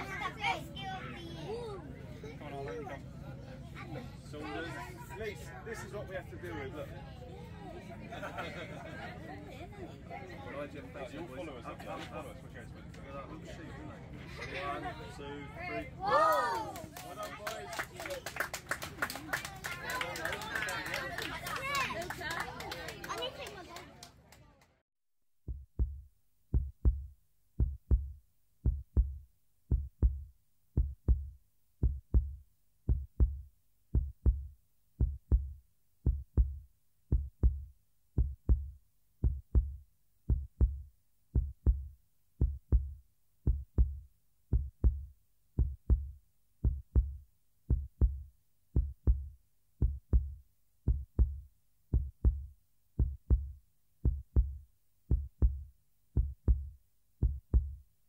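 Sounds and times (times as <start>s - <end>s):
heartbeat thumps: 25.5s - 57.8s.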